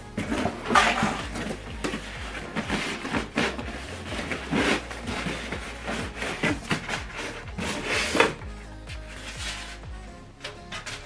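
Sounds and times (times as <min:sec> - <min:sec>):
cardboard scraping and rustling: 0:00.2 - 0:08.4.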